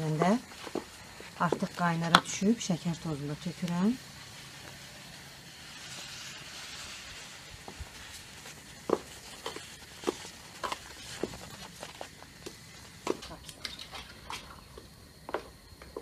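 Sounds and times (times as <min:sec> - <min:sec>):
sugar pouring hiss: 0:00.0 - 0:15.2.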